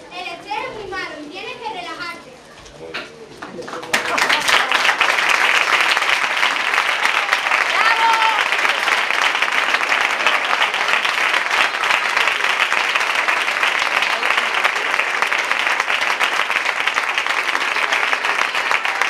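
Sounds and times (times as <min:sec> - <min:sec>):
audience applauding: 0:03.4 - 0:19.0.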